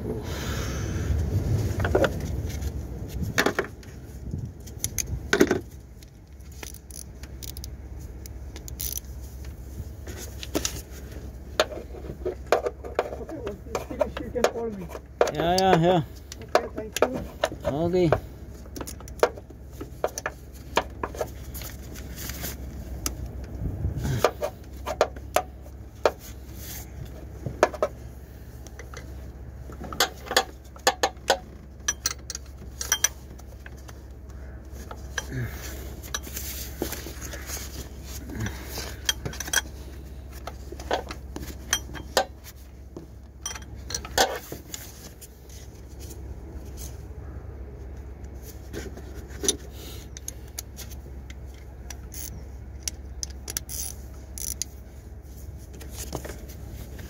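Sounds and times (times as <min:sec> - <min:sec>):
steady low hum: 0:00.0 - 0:57.0
metallic clicks of tools: 0:06.0 - 0:09.1, 0:29.9 - 0:33.2, 0:43.4 - 0:44.4, 0:51.3 - 0:54.7.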